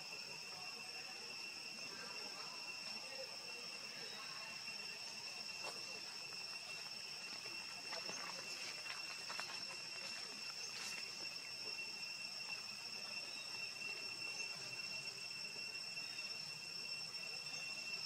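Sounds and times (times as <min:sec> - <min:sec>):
high-pitched insect chorus: 0:00.0 - 0:18.0
faint ticks and scuffs: 0:05.6 - 0:11.5.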